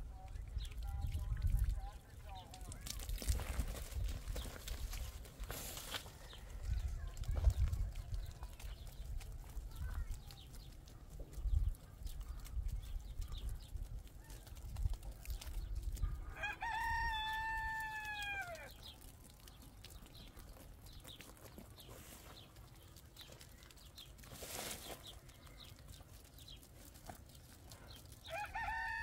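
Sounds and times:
rooster crowing: 0:16.4 - 0:18.7, 0:28.3 - 0:29.0.

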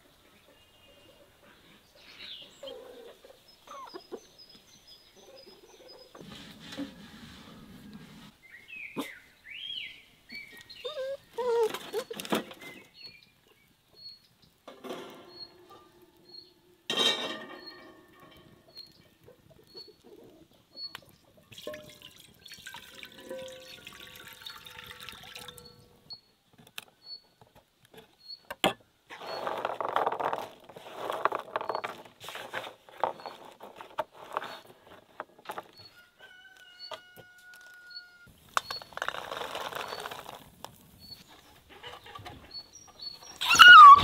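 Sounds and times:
water pouring into a pan: 0:21.5 - 0:25.7.

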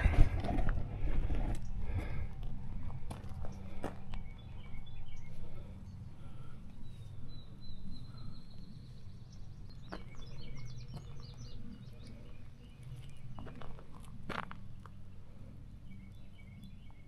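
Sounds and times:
steady low rumble: 0:00.0 - 0:17.0
birds singing: 0:01.0 - 0:17.0.

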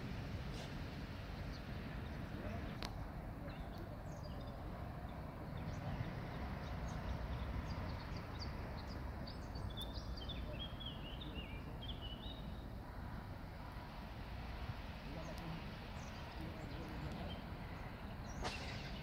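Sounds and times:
small bird chirping: 0:03.5 - 0:12.6.

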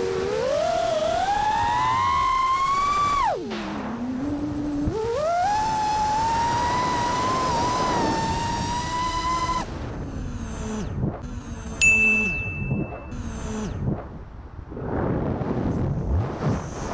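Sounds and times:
quadcopter motors whining: 0:00.0 - 0:11.8, 0:12.6 - 0:14.0.

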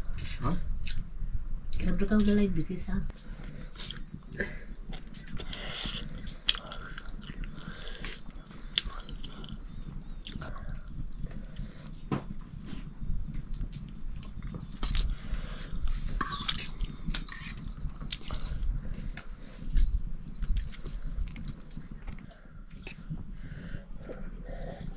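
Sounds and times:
person chewing: 0:00.8 - 0:01.0, 0:03.7 - 0:12.0, 0:13.6 - 0:24.9.

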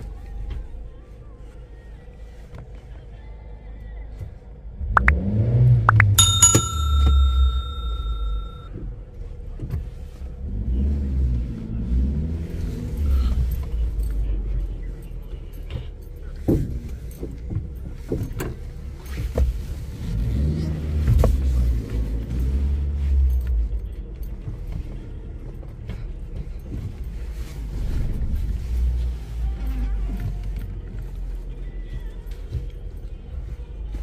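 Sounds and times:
car engine revving: 0:04.7 - 0:06.2, 0:10.3 - 0:14.6, 0:19.7 - 0:23.5
bright ding: 0:05.9 - 0:08.7.

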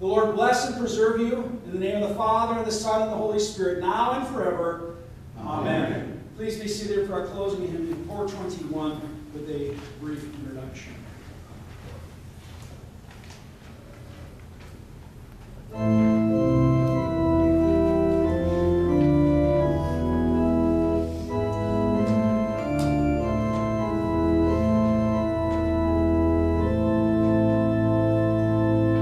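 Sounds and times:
room noise: 0:00.0 - 0:29.0
organ playing held chords: 0:15.6 - 0:29.0.

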